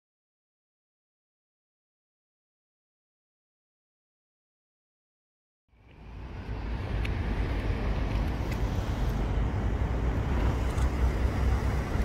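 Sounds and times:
traffic rumble: 0:05.7 - 0:12.0.

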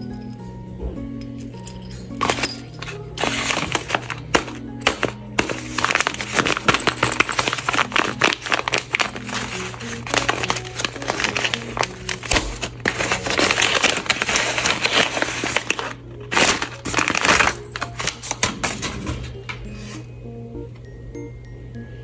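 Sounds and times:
soft background music: 0:00.0 - 0:22.0
paper bag crinkling: 0:02.2 - 0:19.4.

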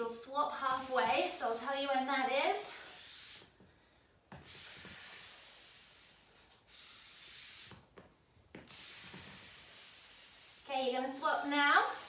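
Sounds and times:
sliders swishing on wooden floor: 0:07.6 - 0:09.4.

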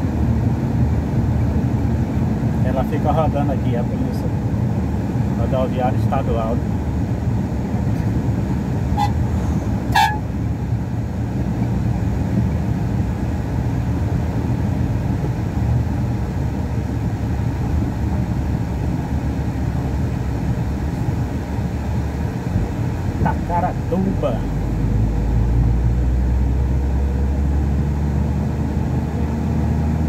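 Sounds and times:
truck engine and tyres droning: 0:00.0 - 0:30.0
vehicle horn toots: 0:08.9 - 0:09.2, 0:09.9 - 0:10.3.

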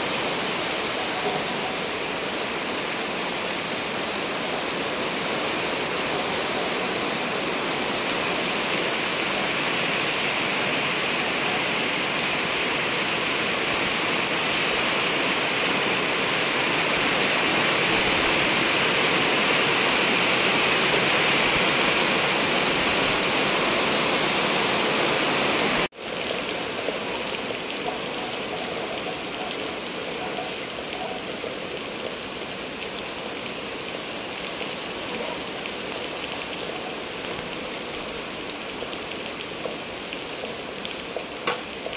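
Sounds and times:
rain pattering on hard surface: 0:00.0 - 0:16.2, 0:25.8 - 0:41.9.

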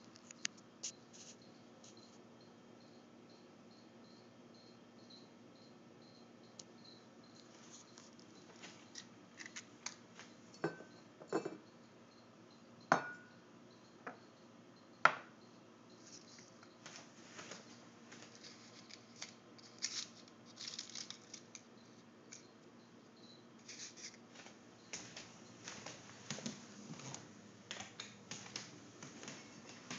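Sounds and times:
scraping and handling noise: 0:07.4 - 0:10.8, 0:16.0 - 0:22.5, 0:23.6 - 0:29.9
glass clinking on tiled countertop: 0:10.5 - 0:11.7, 0:12.9 - 0:13.4.

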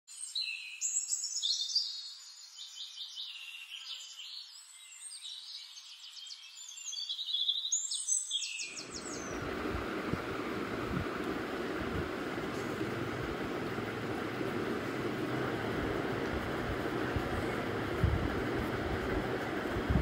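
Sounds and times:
songbirds chirping and trilling: 0:00.1 - 0:20.0
rushing noise with low rumble: 0:08.8 - 0:20.0.

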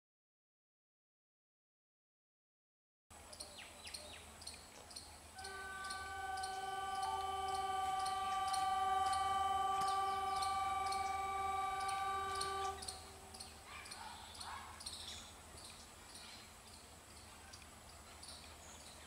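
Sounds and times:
locomotive air horn blast: 0:05.4 - 0:13.6.

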